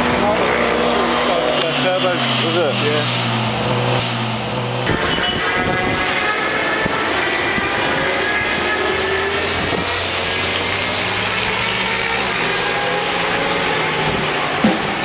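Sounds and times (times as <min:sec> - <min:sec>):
motorcycle engine passing: 0:00.0 - 0:15.0.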